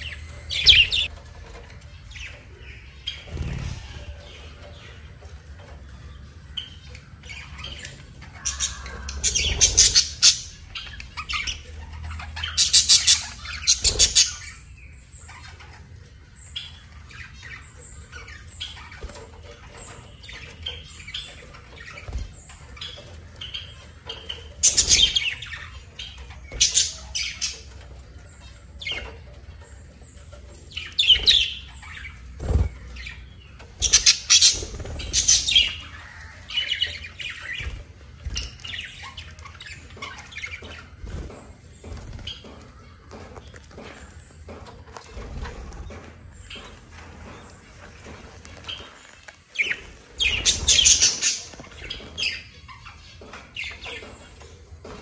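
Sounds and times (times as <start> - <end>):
harsh squawks and chirps: 0.0 - 1.1, 7.7 - 14.6
budgerigars chattering: 0.0 - 5.1, 6.1 - 44.6, 45.2 - 55.0.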